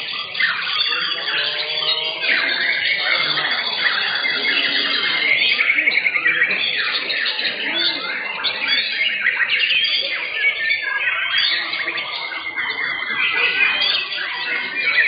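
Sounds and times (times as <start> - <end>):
songbirds singing: 0.0 - 15.0.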